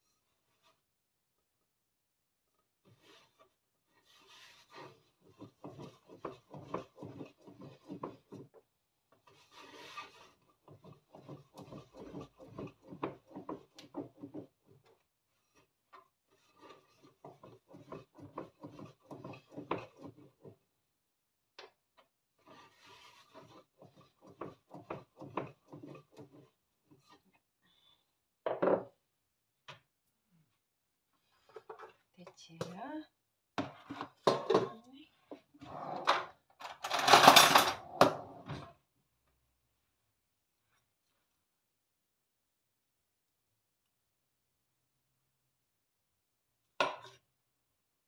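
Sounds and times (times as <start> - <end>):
rolling pin rolling dough: 2.8 - 20.8, 22.3 - 27.2.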